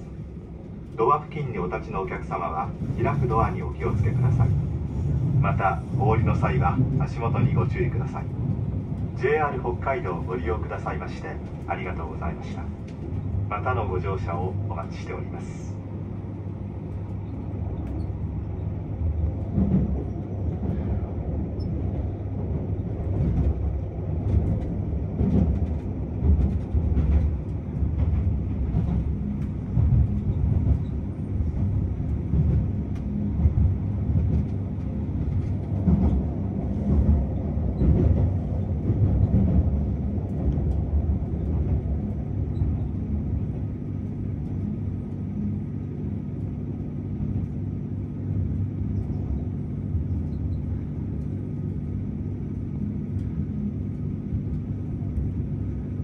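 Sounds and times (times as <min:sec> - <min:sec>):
train wheels rumbling on rail: 0:00.0 - 0:56.0
train knocks: 0:19.4 - 0:21.0, 0:21.6 - 0:43.1.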